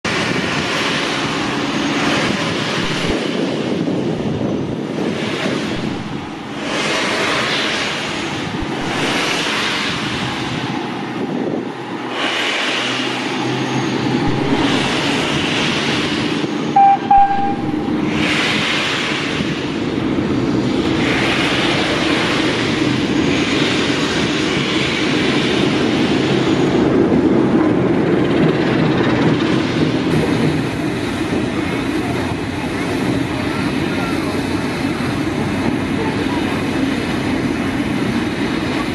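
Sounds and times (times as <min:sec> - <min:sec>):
steam locomotive hissing: 0:00.1 - 0:27.2, 0:28.5 - 0:38.9
diesel engine running: 0:00.1 - 0:38.9
high-pitched train toot: 0:16.7 - 0:18.4.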